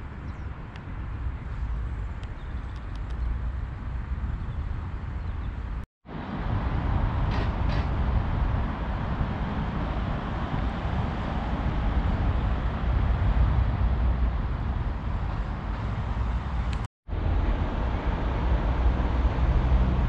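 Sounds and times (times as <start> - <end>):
road traffic rumble: 0.0 - 20.0.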